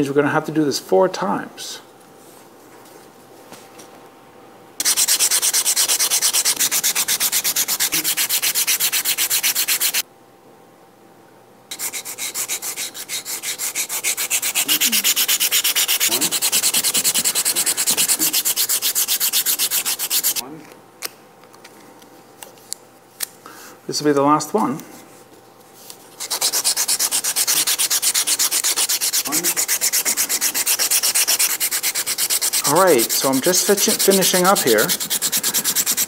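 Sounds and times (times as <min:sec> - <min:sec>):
sandpaper rubbing on wood: 0:04.8 - 0:10.0, 0:11.7 - 0:20.4, 0:26.2 - 0:36.0.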